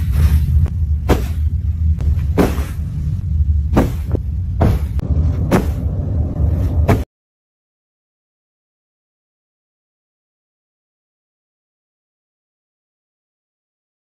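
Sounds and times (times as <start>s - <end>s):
fur scuffing on phone: 2.0s - 2.9s, 3.8s - 5.8s.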